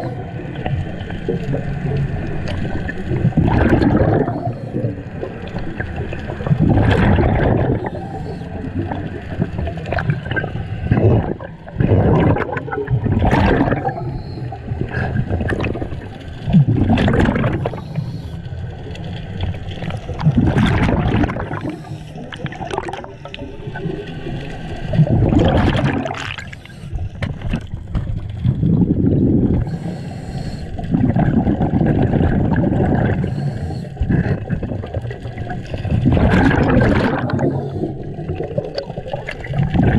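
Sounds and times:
bubbling exhaled air: 0.0s - 18.4s, 19.8s - 39.9s
diver regulator breathing rush: 7.8s - 8.7s, 17.5s - 18.4s, 21.4s - 22.3s, 26.4s - 27.2s, 29.2s - 31.0s, 33.0s - 34.6s, 37.1s - 38.2s.

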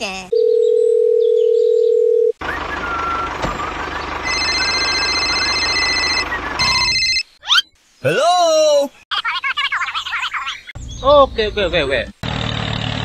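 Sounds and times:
telephone dial tone: 0.3s - 2.4s, 4.3s - 6.2s
tractor engine pulsing: 2.4s - 7.2s.

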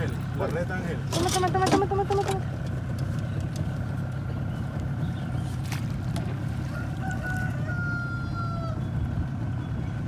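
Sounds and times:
rooster crowing: 6.6s - 8.9s.

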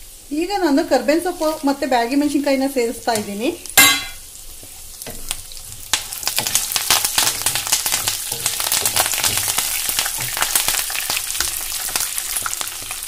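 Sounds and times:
food sizzling in hot oil: 0.0s - 13.0s
wooden spatula stirring: 4.5s - 13.0s.

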